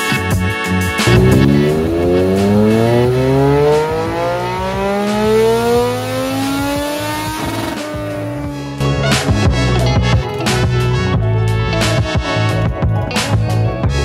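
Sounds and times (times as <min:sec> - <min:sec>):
motorcycle engine at full throttle: 0:01.0 - 0:08.9.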